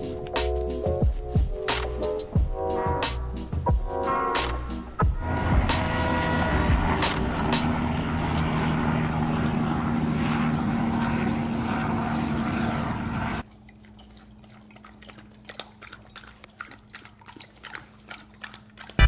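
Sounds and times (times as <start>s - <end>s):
propeller plane engine drone: 0.0s - 13.4s
dog eating from metal bowl: 13.4s - 19.0s.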